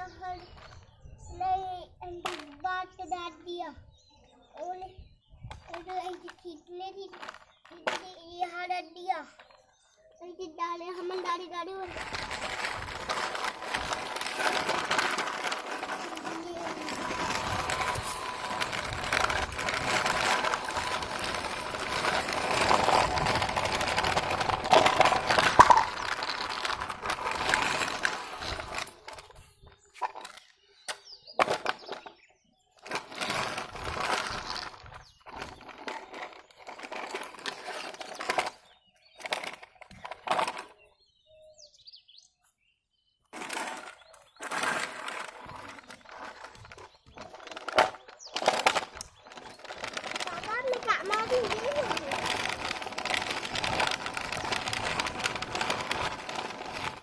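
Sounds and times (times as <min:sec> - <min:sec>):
toy truck wheels scraping concrete: 0:05.6 - 0:09.4, 0:10.8 - 0:30.5, 0:32.8 - 0:40.8, 0:43.3 - 0:57.0.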